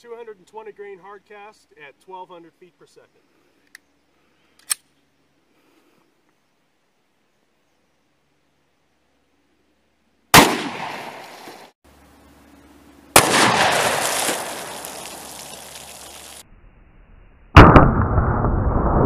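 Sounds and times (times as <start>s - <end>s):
sharp booming blasts: 10.3s - 11.2s, 13.1s - 15.4s, 17.6s - 19.0s
pistol shots with echo: 10.4s - 11.2s, 13.2s - 14.0s.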